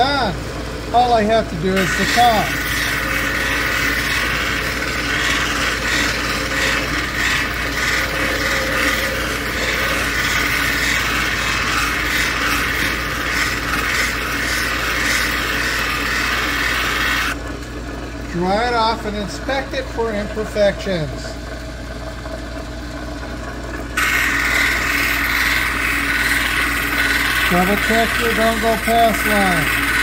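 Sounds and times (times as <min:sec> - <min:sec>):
machine motor hum: 0:00.0 - 0:30.0
stone grinding on spinning wheel: 0:01.6 - 0:17.4, 0:24.0 - 0:30.0.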